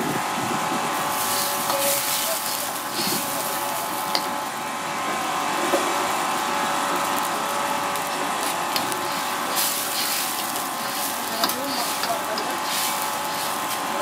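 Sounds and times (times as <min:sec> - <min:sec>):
whirring kitchen noise: 0:00.0 - 0:14.0.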